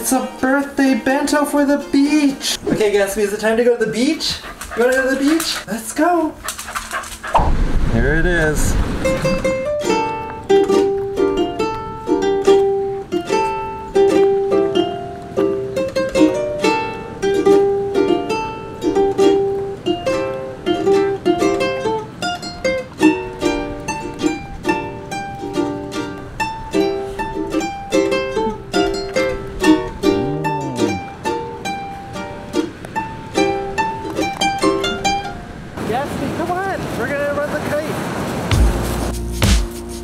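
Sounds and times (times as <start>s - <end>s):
ukulele playing plucked tune: 0.0s - 2.6s, 9.0s - 35.7s.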